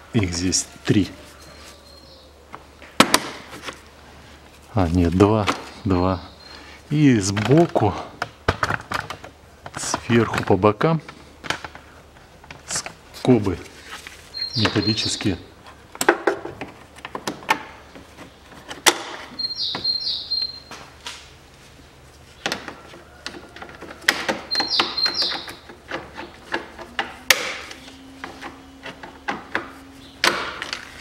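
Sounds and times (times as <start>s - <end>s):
bird chirping: 0.2s - 2.5s, 5.6s - 7.3s, 14.3s - 15.6s, 19.3s - 20.8s, 24.3s - 26.8s, 27.5s - 30.6s.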